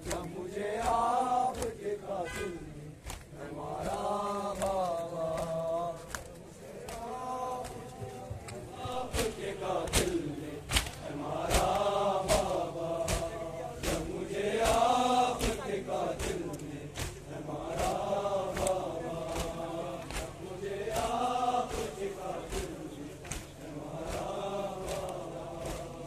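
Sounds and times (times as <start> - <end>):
chest-beating slaps: 0.0 - 4.0, 9.1 - 25.9
men chanting in unison: 0.0 - 26.0.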